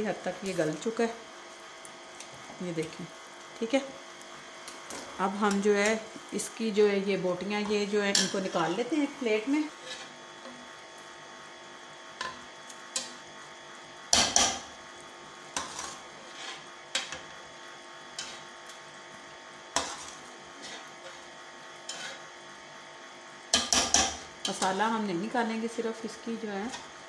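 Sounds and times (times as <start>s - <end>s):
metal spoon scraping metal pot: 9.8s - 10.2s, 18.2s - 18.5s, 21.9s - 22.3s.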